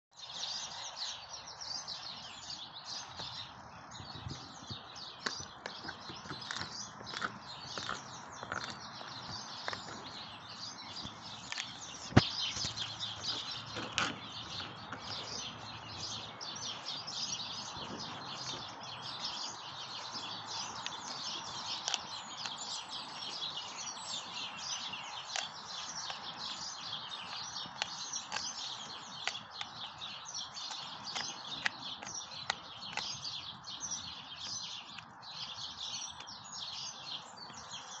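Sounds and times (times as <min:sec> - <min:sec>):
birds chirping: 0:00.1 - 0:38.0
dog chewing with crunches: 0:04.9 - 0:23.5, 0:24.5 - 0:35.6.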